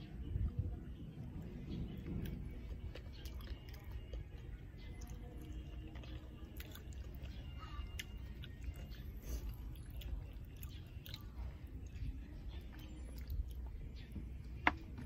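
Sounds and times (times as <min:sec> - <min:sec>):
steady low rumble: 0:00.0 - 0:15.0
person chewing with mouth closed: 0:02.1 - 0:14.8.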